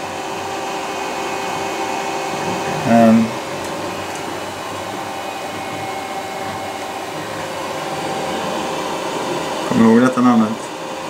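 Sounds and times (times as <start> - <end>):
faint steady tones: 0.0 - 11.0
fan whir: 0.0 - 11.0.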